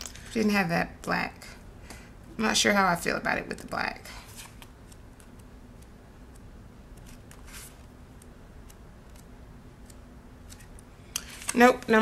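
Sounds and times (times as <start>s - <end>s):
paper pages flicking and rustling: 7.0s - 7.9s, 10.5s - 12.0s.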